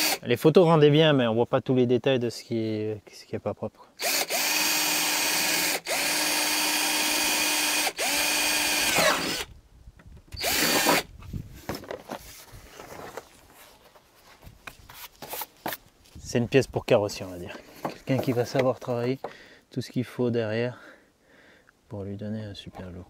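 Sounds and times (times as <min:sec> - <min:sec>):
cordless drill whining: 0:00.0 - 0:00.2, 0:04.0 - 0:09.5, 0:10.3 - 0:11.1
handling noises: 0:10.9 - 0:16.3, 0:16.9 - 0:19.4.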